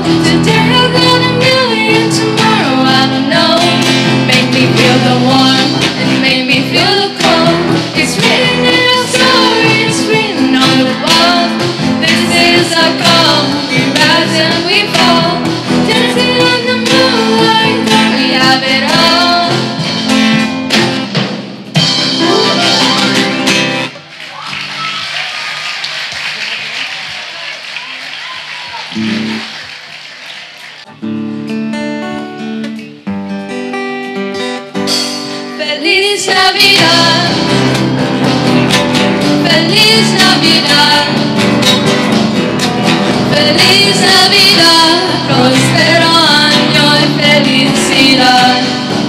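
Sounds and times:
girls singing into microphones: 0.0s - 19.8s, 35.6s - 37.9s, 39.4s - 41.5s, 43.3s - 49.0s
strummed acoustic guitars: 0.0s - 25.0s, 28.6s - 49.0s
drum kit: 0.0s - 27.2s, 27.8s - 30.0s, 34.8s - 35.6s, 36.6s - 49.0s.

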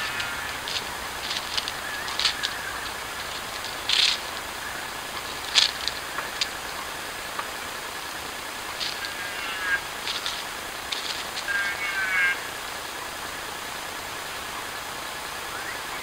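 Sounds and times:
bowerbirds rasping and clicking: 0.0s - 11.8s.

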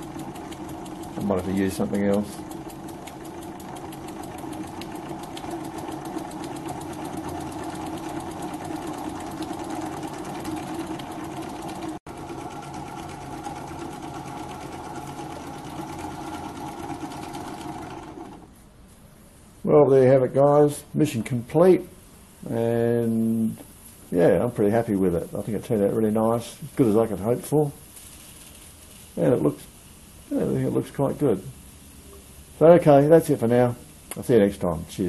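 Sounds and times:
model steam engine chuffing: 0.0s - 18.4s.

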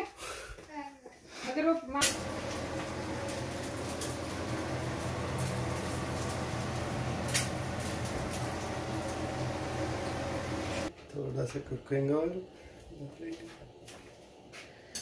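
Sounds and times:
machine humming: 2.0s - 10.9s.

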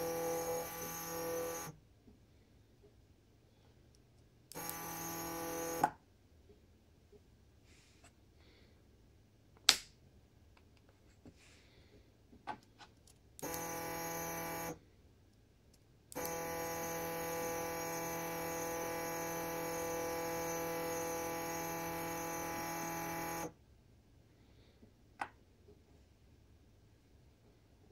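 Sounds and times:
stepper motor whining: 0.0s - 1.7s, 4.5s - 5.9s, 13.4s - 14.8s, 16.1s - 23.5s.

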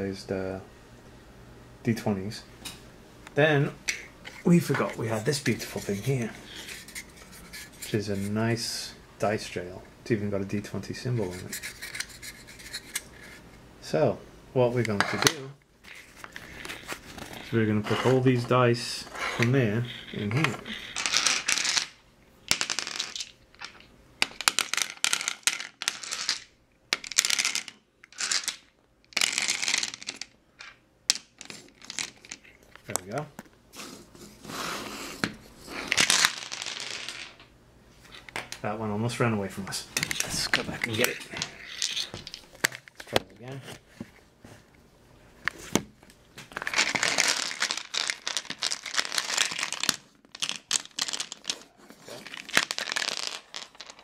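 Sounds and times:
plastic dice clattering in wooden box: 19.4s - 33.1s, 35.9s - 37.5s, 40.0s - 43.1s, 46.6s - 54.0s.

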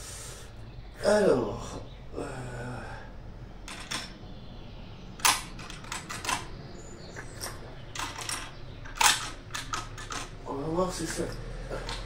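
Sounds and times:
rifle bolt clicks and clacks: 5.2s - 6.6s, 7.2s - 10.4s.

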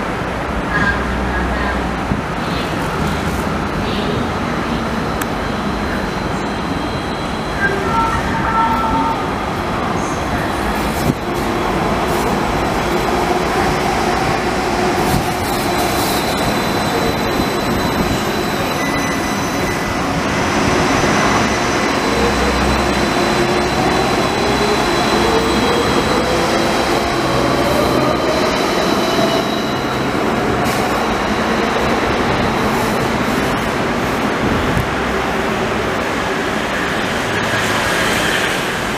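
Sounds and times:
tram wheels running on track: 0.0s - 38.9s.

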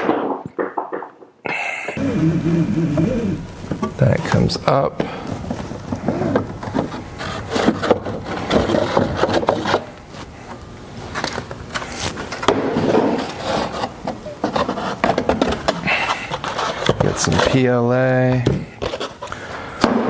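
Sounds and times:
pulp packing rubbing and scraping: 5.5s - 9.9s, 13.0s - 17.8s, 18.8s - 19.4s.

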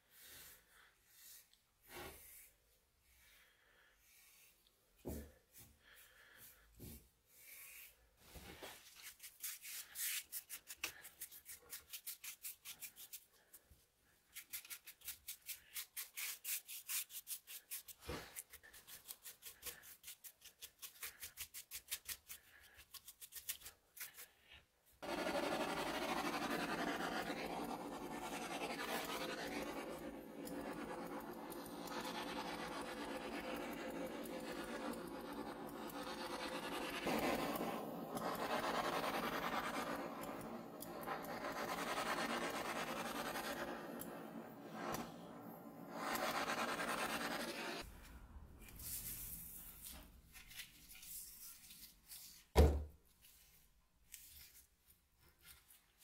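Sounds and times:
butane torch hissing roar: 25.0s - 47.8s
gloved hands rubbing wood: 25.0s - 47.8s.

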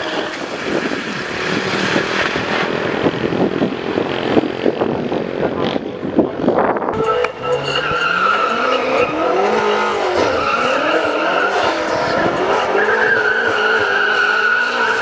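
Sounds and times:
engine at high revs: 0.0s - 15.0s
tyres squealing: 6.9s - 15.0s.

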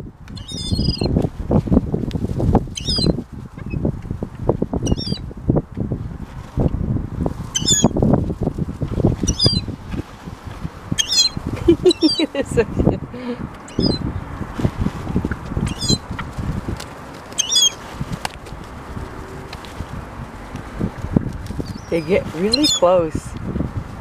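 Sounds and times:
low buffeting noise: 0.0s - 24.0s
gulls calling: 11.0s - 13.0s, 13.6s - 14.0s, 17.3s - 17.8s.

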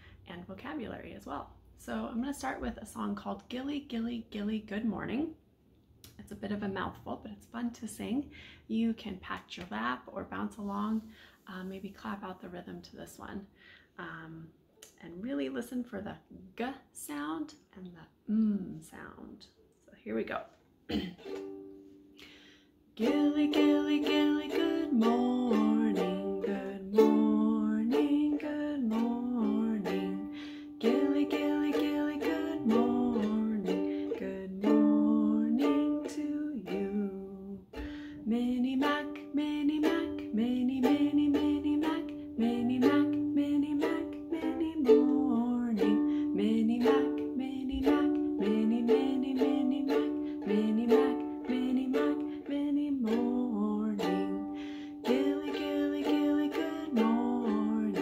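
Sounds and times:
ukulele strumming: 20.3s - 22.4s, 23.0s - 58.0s
woman singing: 23.0s - 58.0s.

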